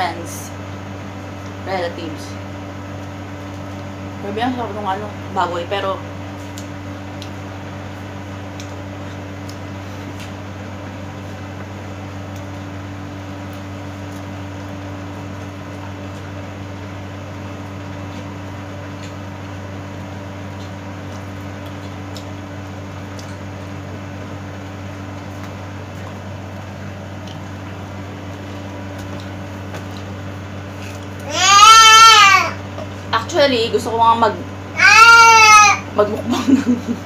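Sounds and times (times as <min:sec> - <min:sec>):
appliance humming: 0:00.0 - 0:37.0
chewing food: 0:06.4 - 0:16.9, 0:20.3 - 0:23.8, 0:24.5 - 0:31.3.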